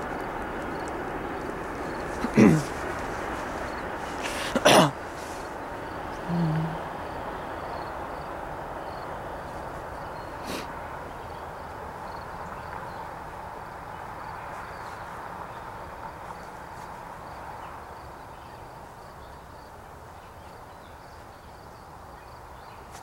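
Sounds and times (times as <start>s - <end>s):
insect chirps: 0.0s - 23.0s
train rumble and wheel noise: 0.0s - 23.0s.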